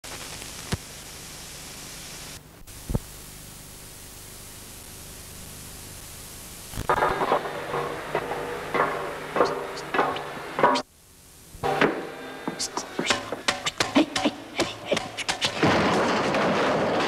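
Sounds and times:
videotape hiss: 0:00.0 - 0:17.0
knocks and clatter with tones: 0:06.9 - 0:10.8, 0:11.6 - 0:17.0.

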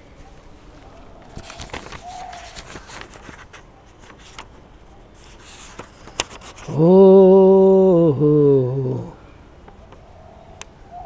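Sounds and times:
paper rustling: 0:00.8 - 0:04.5, 0:05.1 - 0:06.8
man singing a held note: 0:06.7 - 0:09.2.

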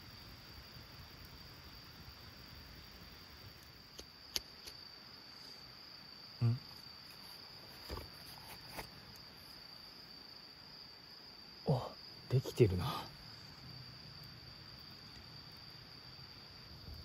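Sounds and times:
crickets trilling: 0:00.0 - 0:17.0
person speaking: 0:11.7 - 0:13.2.

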